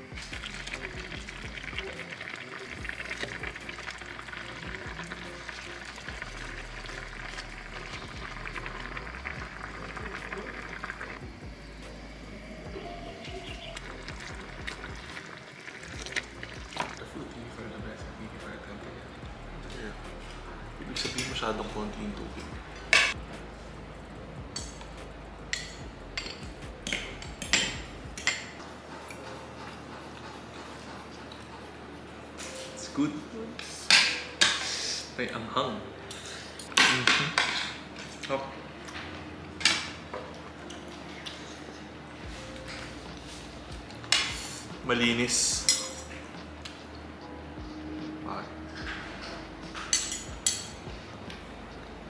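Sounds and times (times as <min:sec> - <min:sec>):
broth bubbling in a pan: 0:00.0 - 0:11.7, 0:12.3 - 0:17.3
spoons clinking on plates: 0:36.1 - 0:38.3, 0:45.3 - 0:46.3, 0:48.8 - 0:50.9.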